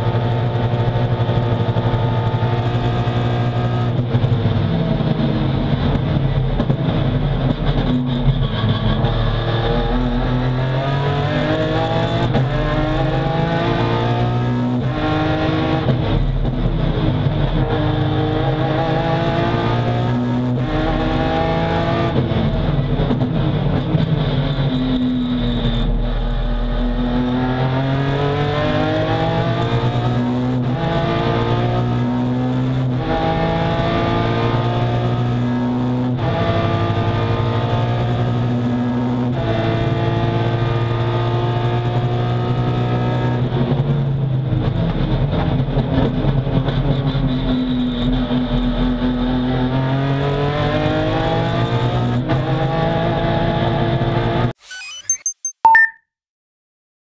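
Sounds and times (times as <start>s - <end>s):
race car engine revving: 0.0s - 43.5s.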